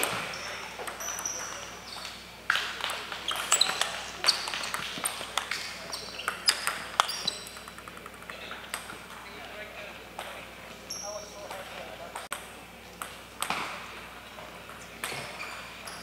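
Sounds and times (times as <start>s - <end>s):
distant ping-pong ball clicks: 0.0s - 9.2s
ping-pong ball clicking off paddles: 0.0s - 9.3s, 11.5s - 13.8s.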